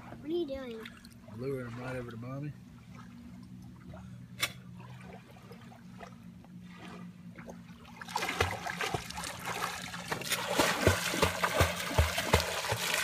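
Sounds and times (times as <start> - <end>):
lake water splashing: 0.0 - 13.0.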